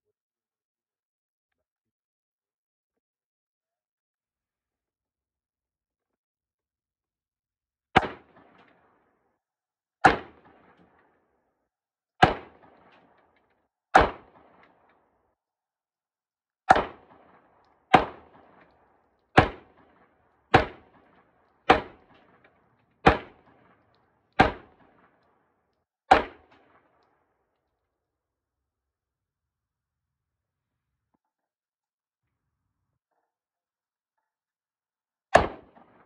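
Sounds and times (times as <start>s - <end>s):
gunshots: 8.0s - 8.8s, 10.0s - 11.0s, 12.2s - 13.3s, 13.9s - 14.9s, 16.7s - 25.2s, 26.1s - 27.0s, 35.3s - 36.0s.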